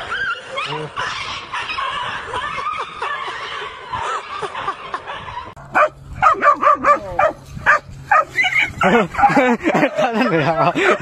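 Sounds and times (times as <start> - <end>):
dog yipping and whining: 7.2 - 8.8
young animal crying: 8.1 - 9.3.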